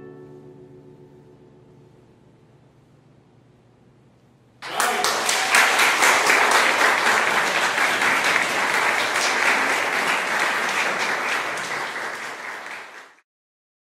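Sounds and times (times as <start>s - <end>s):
audience applauding: 4.6s - 13.2s.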